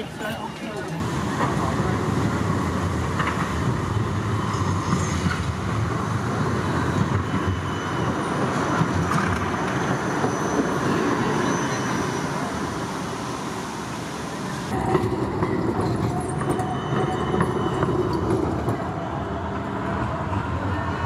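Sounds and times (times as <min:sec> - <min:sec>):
tram rumbling on rails: 0:00.0 - 0:21.0
high wheel squeals: 0:06.6 - 0:12.7, 0:15.8 - 0:19.5.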